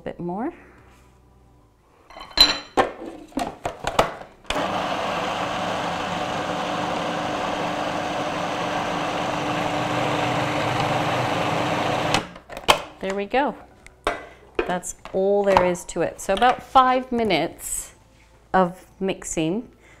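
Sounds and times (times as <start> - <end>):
food processor motor running: 4.5 - 12.3.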